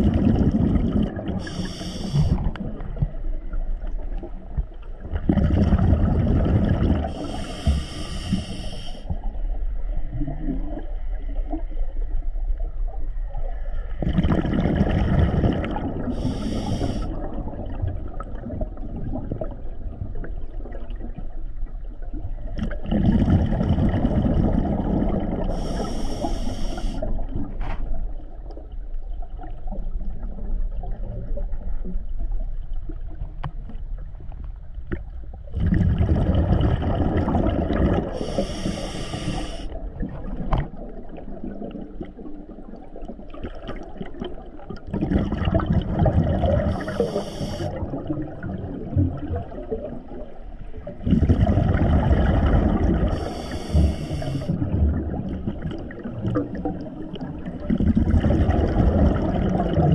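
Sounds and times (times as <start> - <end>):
exhaled bubbles gurgling underwater: 0.0 - 59.9
regulator hiss: 1.4 - 2.4, 7.2 - 9.0, 16.2 - 17.1, 25.6 - 27.0, 38.2 - 39.8, 46.8 - 47.7, 53.2 - 54.5.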